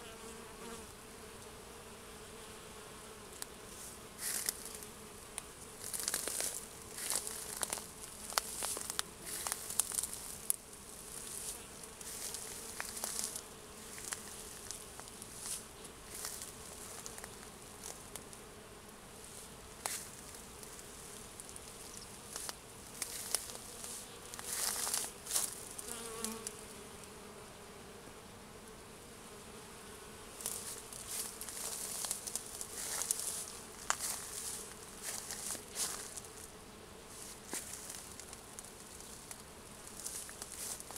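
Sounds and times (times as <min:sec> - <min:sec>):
bee passing close: 0:00.0 - 0:40.9
bees buzzing: 0:00.0 - 0:40.9
leaves rustling: 0:03.7 - 0:04.8, 0:05.8 - 0:18.3, 0:19.2 - 0:25.8, 0:30.4 - 0:36.5, 0:37.1 - 0:40.9.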